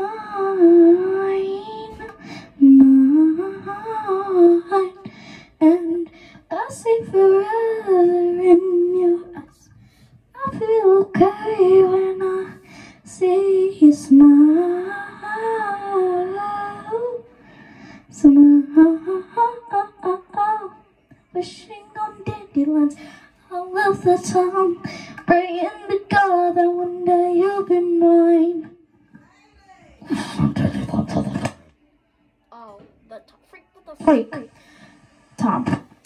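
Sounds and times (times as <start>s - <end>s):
girl singing into a microphone: 0.0s - 17.3s, 18.1s - 28.8s.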